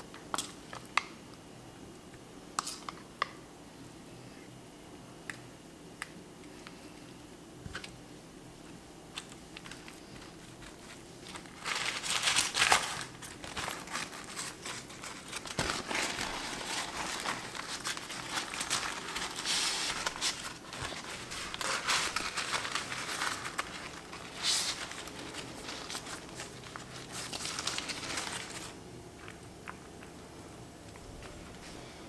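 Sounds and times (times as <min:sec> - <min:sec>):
baking paper crinkling: 0:09.1 - 0:32.0.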